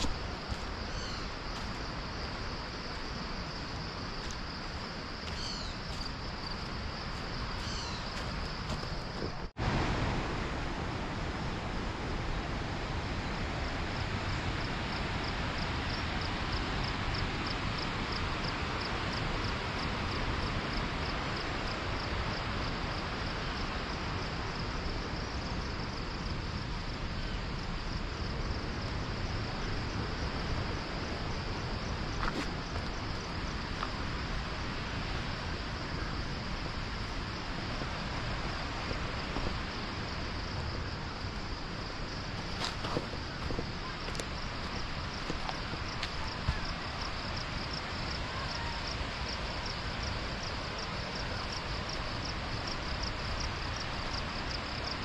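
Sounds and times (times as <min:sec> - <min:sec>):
high pulsing insect call: 0:00.0 - 0:09.5, 0:11.5 - 0:55.0
flowing water rushing: 0:00.0 - 0:24.5, 0:29.7 - 0:55.0.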